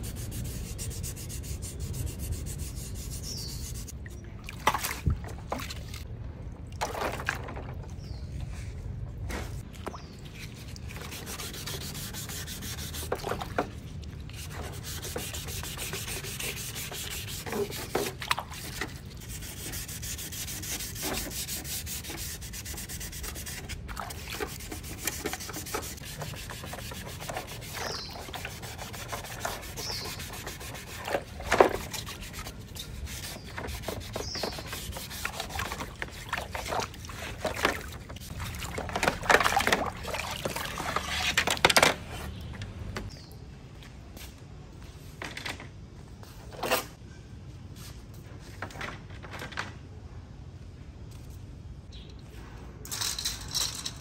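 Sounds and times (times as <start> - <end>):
water splashes: 4.0 - 7.5
sanding pad rubbing plastic: 14.4 - 23.8, 24.4 - 36.0.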